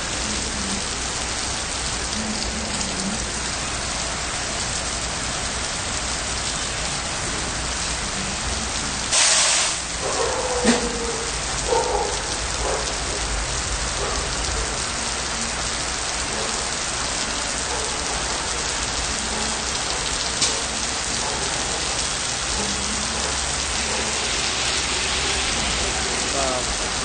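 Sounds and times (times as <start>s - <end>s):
rain pouring on wet pavement: 0.0s - 27.0s.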